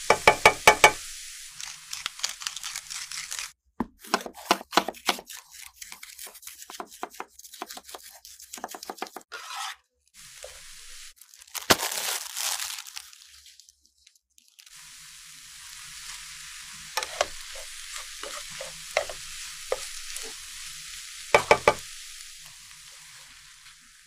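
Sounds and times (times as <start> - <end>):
salt mill grinding: 0.1 - 3.6, 17.0 - 20.4, 21.3 - 21.8
plastic wrapping crinkling and tearing: 1.5 - 3.6, 11.2 - 14.8
knife chopping on wooden board: 3.8 - 5.3, 6.7 - 9.2, 21.4 - 21.8.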